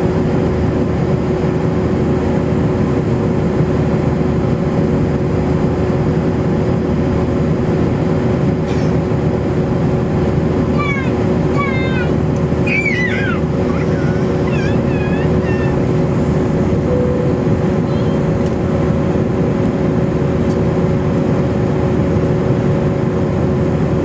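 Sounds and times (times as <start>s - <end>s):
airliner cabin engine rush: 0.0s - 24.0s
low hum tones: 0.0s - 24.0s.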